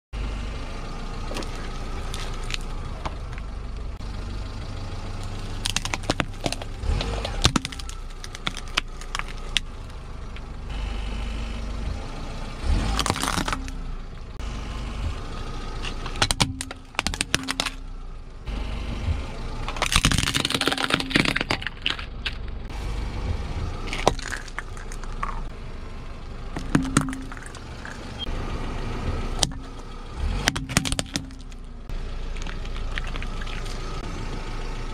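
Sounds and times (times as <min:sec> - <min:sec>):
low engine hum: 0:00.2 - 0:34.9
tyres crushing plastic objects: 0:05.6 - 0:09.7, 0:12.9 - 0:13.8, 0:15.8 - 0:17.8, 0:19.6 - 0:22.6, 0:23.8 - 0:25.5, 0:26.5 - 0:28.2, 0:29.4 - 0:33.8.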